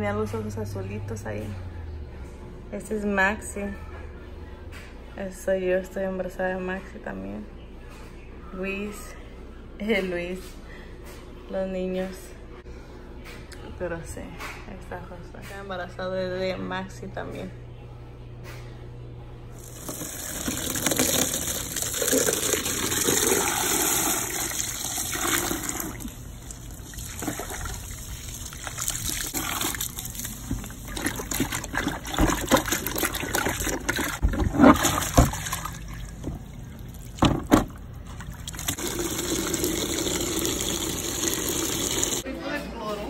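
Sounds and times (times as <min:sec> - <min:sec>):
water running and splashing: 0:19.6 - 0:37.3, 0:38.1 - 0:42.2.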